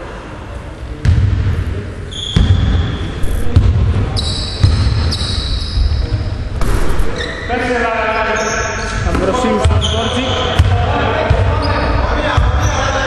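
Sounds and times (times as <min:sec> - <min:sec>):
basketball bouncing on wooden floor: 0:04.6 - 0:05.1.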